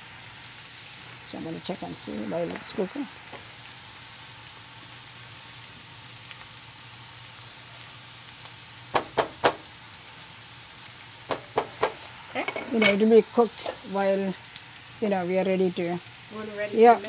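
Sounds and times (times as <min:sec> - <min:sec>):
vegetables sizzling in a frying pan: 0:00.0 - 0:17.0
sharp knocks: 0:09.0 - 0:09.6, 0:11.3 - 0:12.0.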